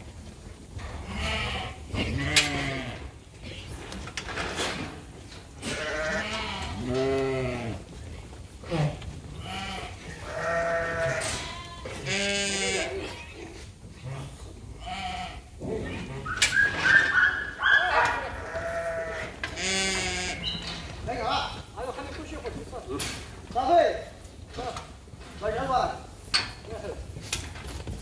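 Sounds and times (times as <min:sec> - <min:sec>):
sheep bleating: 0:01.0 - 0:03.0, 0:05.6 - 0:07.8, 0:08.7 - 0:13.6, 0:14.8 - 0:15.5, 0:18.0 - 0:20.6.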